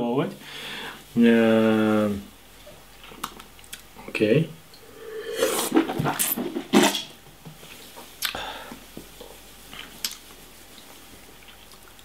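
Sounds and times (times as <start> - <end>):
wine slurping: 4.8 - 7.0.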